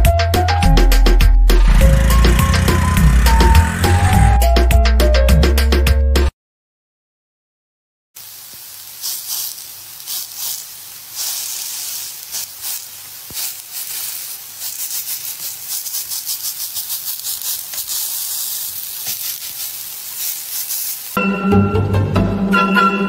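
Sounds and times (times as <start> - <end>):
stir-fry sizzling in pan: 8.2 - 21.2.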